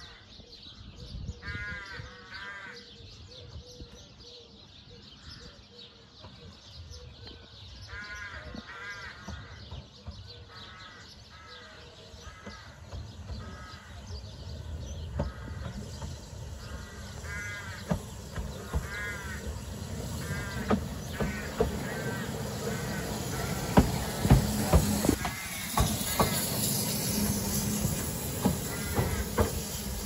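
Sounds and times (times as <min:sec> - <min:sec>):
crow cawing: 0:01.4 - 0:02.8, 0:07.9 - 0:09.6, 0:16.7 - 0:18.0, 0:18.6 - 0:23.8, 0:28.7 - 0:29.4
train wheels clicking over rail joints: 0:08.6 - 0:30.0
steam locomotive rumble: 0:09.2 - 0:30.0.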